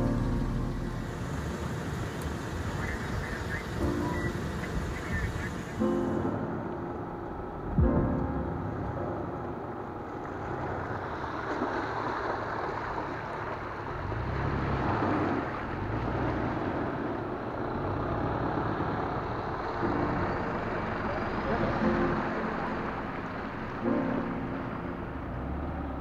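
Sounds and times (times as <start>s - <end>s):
steady rushing noise: 0.0s - 14.2s
vehicle engine running: 0.0s - 26.0s.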